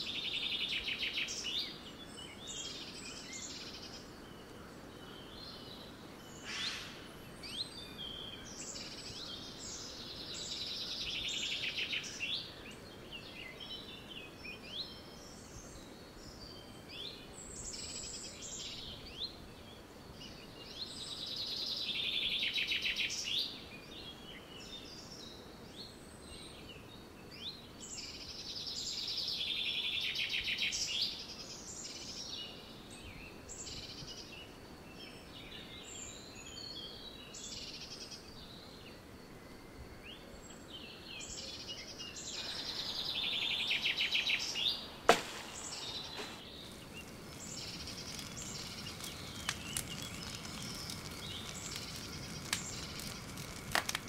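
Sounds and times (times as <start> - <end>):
faint background hiss: 0.0 - 54.0
bird chirps: 40.1 - 53.6
songbird trilling: 41.5 - 53.6
sharp crack: 44.2 - 54.0.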